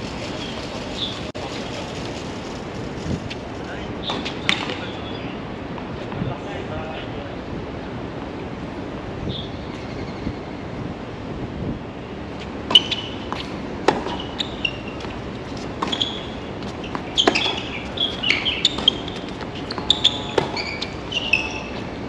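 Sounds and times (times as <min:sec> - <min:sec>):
shoe squeaks: 0:12.7 - 0:22.0.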